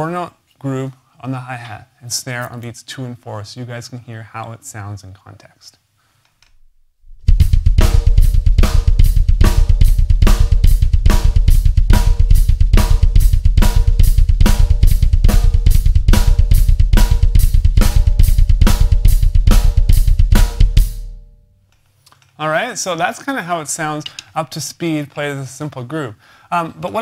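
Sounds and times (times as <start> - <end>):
double bass drum triplets: 7.1 - 21.3
snare drum hits: 7.3 - 20.9
hi-hat quarter notes: 7.3 - 21.2.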